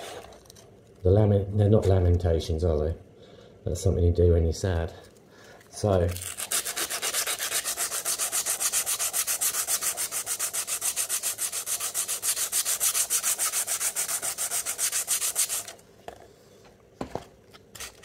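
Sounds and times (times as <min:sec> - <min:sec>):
sandpaper rubbing on metal: 0:06.2 - 0:15.8.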